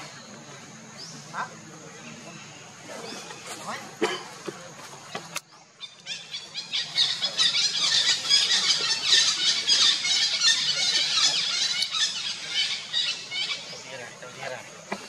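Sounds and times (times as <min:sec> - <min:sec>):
monkeys squealing: 0:05.9 - 0:13.8.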